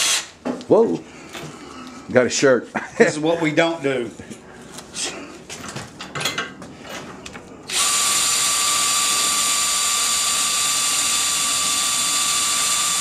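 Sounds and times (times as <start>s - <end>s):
power drill whine: 0.0s - 0.3s, 7.7s - 13.0s.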